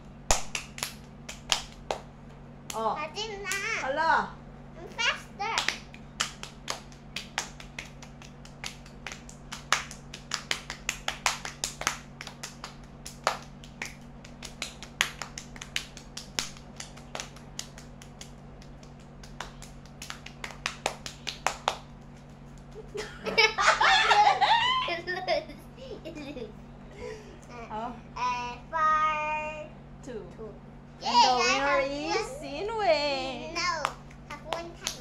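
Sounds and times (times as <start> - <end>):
faint low hum: 0.0 - 35.0
hands clapping fast: 0.3 - 2.1, 5.5 - 23.0, 33.8 - 35.0.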